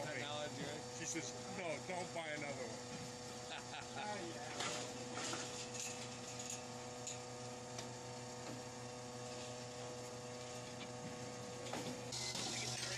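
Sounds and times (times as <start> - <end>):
hydraulic power unit humming: 0.0 - 12.9.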